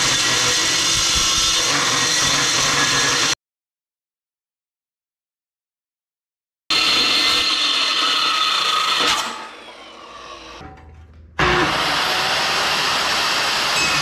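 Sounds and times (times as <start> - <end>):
circular saw cutting steel: 0.0 - 3.4, 6.7 - 10.6, 11.4 - 14.0.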